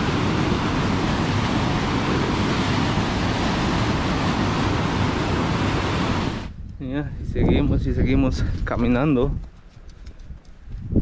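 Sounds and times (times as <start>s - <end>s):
river rushing: 0.0s - 6.5s.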